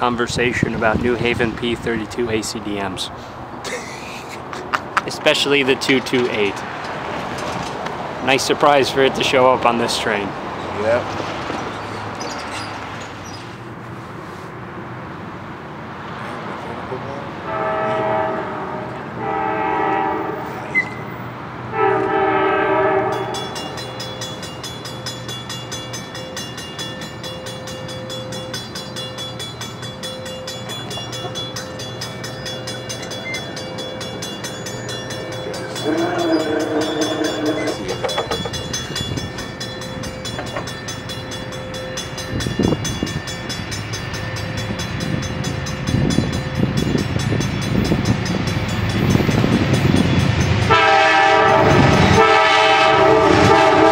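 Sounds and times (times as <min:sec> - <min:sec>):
train rumble: 0:00.0 - 0:14.6, 0:16.2 - 0:53.9
distant train horn blasts: 0:17.4 - 0:23.8, 0:35.4 - 0:38.4, 0:50.6 - 0:53.9.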